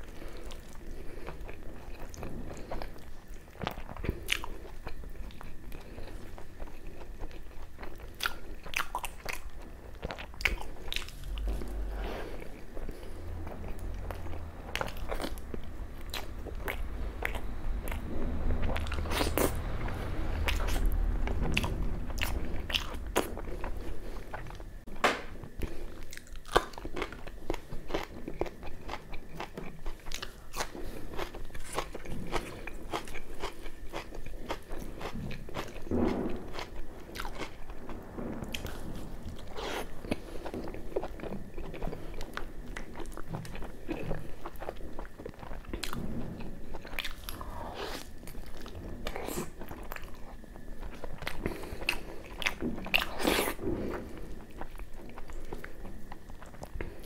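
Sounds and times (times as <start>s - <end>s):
person chewing food: 0.0s - 57.0s.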